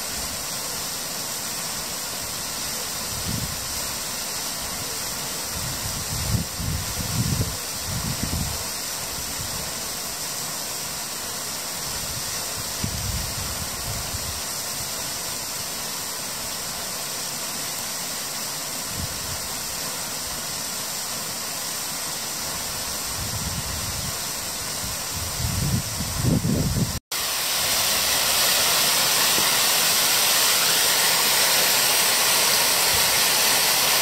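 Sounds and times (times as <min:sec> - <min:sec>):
flowing water rushing: 0:00.0 - 0:34.0.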